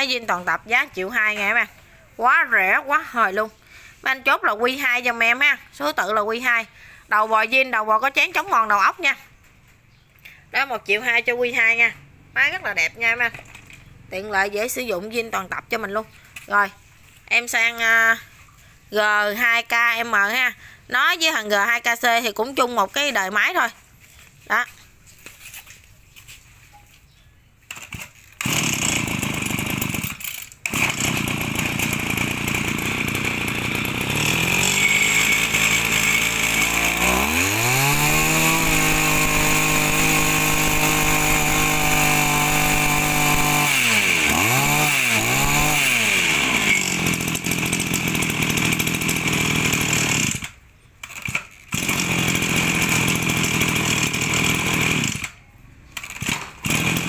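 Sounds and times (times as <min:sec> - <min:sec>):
brush cutter engine revving: 0:27.7 - 0:55.4, 0:56.0 - 0:57.0.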